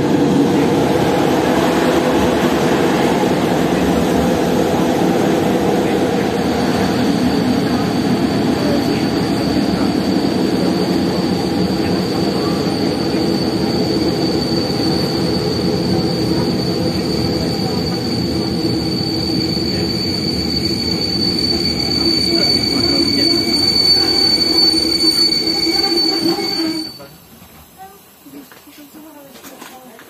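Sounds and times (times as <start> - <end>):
high steady whine: 0.0 - 27.2
train wheels rumbling on rails: 0.0 - 30.0.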